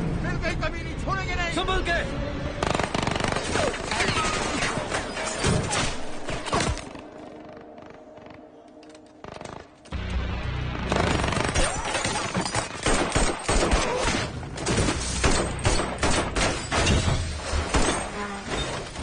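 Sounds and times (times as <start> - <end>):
rapid gunfire: 2.6 - 4.8, 10.9 - 14.3, 15.2 - 16.6.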